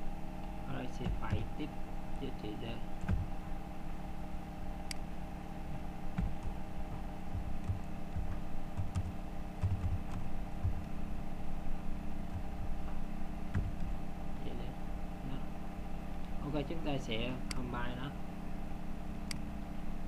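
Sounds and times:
steady electrical hum: 0.0 - 20.0
computer keyboard keystrokes: 7.3 - 10.8.

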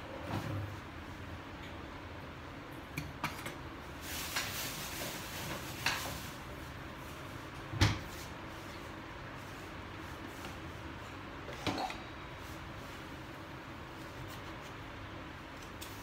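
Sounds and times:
noisy rustle: 3.9 - 10.9.

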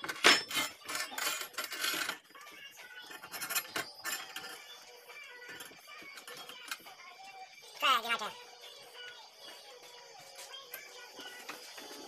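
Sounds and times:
metal parts clattering: 0.0 - 2.3, 3.0 - 4.7
faint background music: 0.0 - 12.0.

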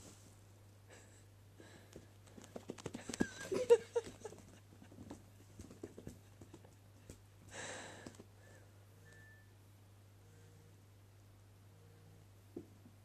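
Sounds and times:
kitten paws scratching carpet: 2.0 - 7.2.

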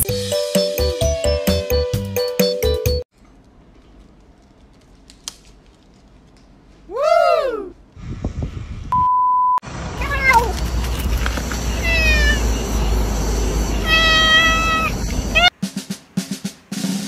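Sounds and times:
wind rumble on microphone: 8.0 - 9.1
cat meowing: 10.0 - 10.5, 11.7 - 12.6, 13.7 - 15.5.

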